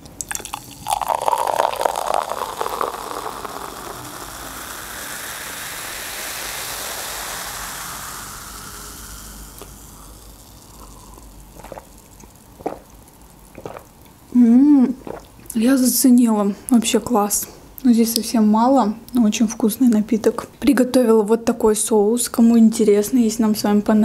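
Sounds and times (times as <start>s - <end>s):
bubbles fizzing: 0.0s - 15.9s
drink gurgling into a glass: 0.2s - 15.6s
person sipping: 0.2s - 15.6s.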